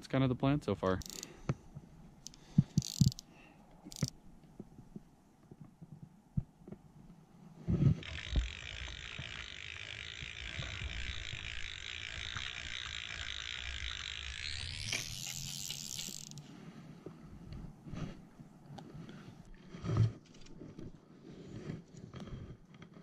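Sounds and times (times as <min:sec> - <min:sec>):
fishing reel knocks and clicks: 0:00.8 - 0:01.6, 0:02.2 - 0:04.2, 0:08.0 - 0:16.4.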